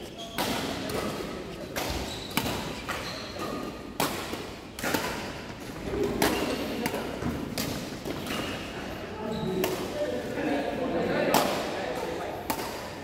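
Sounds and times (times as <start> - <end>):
rackets hitting shuttlecock: 0.3 - 8.6, 11.3 - 13.0.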